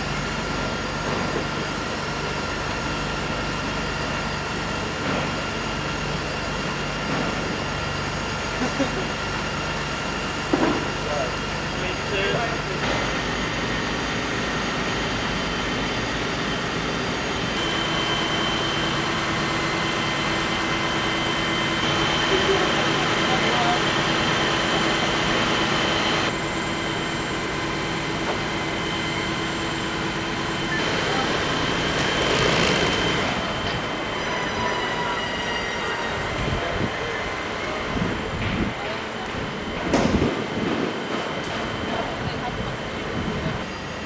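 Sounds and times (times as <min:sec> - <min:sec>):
diesel fire engines idling: 0:00.0 - 0:34.2
high steady whine: 0:00.0 - 0:35.1.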